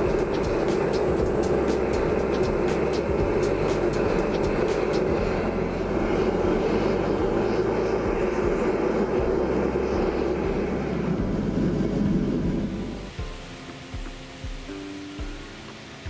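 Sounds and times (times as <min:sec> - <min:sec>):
furnace burner roaring: 0:00.0 - 0:16.0.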